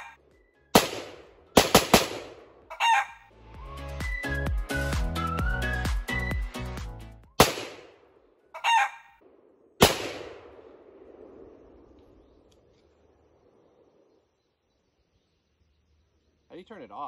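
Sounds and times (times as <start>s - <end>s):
music: 0.2s - 1.6s, 3.3s - 7.4s
rifle shots with echo: 0.7s - 2.7s, 7.4s - 8.3s, 9.2s - 12.7s.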